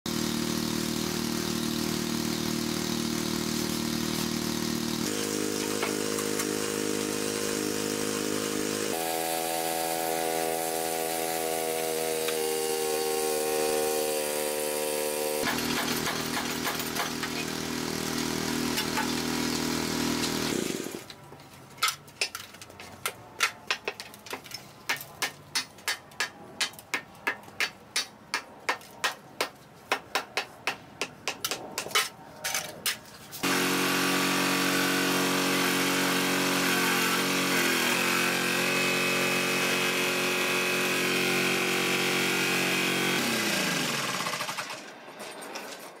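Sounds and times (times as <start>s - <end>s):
hydraulic power unit running: 0.1s - 21.1s, 33.4s - 44.9s
grinder whining: 0.1s - 21.2s, 33.4s - 45.0s.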